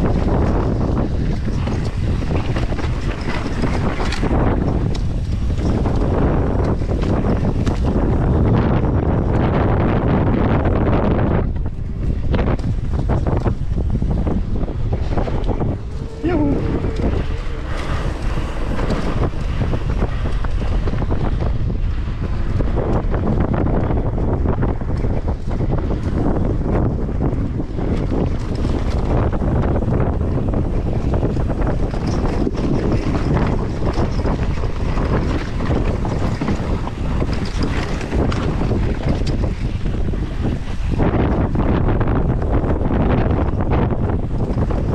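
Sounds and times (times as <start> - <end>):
mountain bike rattling on trail: 0.0 - 44.9
tyres rumbling over dirt and rock: 0.0 - 44.9
wind buffeting microphone: 0.0 - 44.9.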